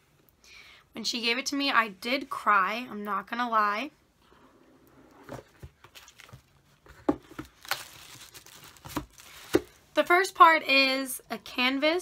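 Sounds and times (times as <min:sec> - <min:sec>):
gift wrapping crinkling: 0:07.2 - 0:09.9.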